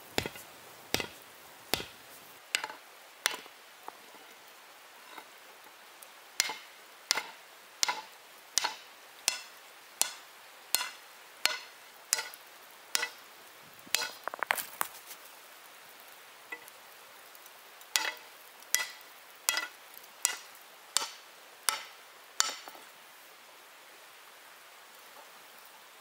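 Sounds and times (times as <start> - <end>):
hammer striking hot iron: 0.2 - 2.0, 2.6 - 3.5, 6.4 - 10.2, 10.8 - 12.4, 13.0 - 13.2, 13.9 - 14.2, 18.0 - 22.8.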